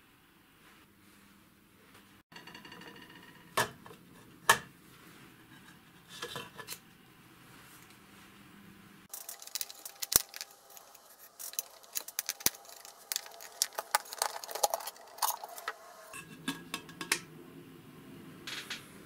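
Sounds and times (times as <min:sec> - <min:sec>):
clicks and metallic rattles: 0:09.1 - 0:17.3.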